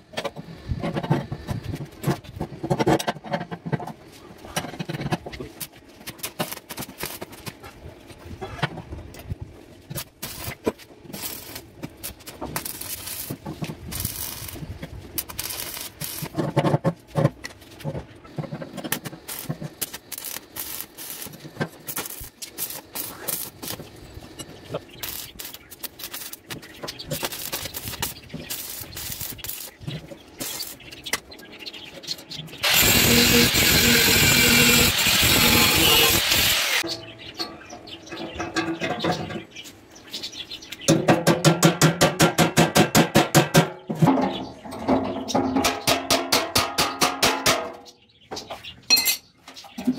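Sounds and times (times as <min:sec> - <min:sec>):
arc welding crackling: 0:05.6 - 0:07.5, 0:09.9 - 0:16.6, 0:18.4 - 0:31.2, 0:32.6 - 0:36.9
angle grinder cutting metal: 0:32.6 - 0:36.8.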